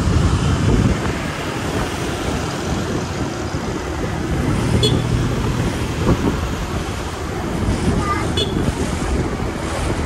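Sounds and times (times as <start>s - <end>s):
dense street traffic: 0.0s - 10.0s.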